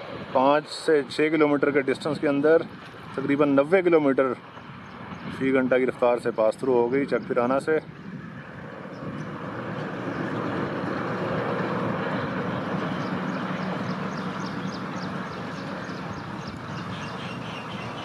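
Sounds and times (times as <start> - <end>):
train wheels rumbling on track: 8.5 - 17.0.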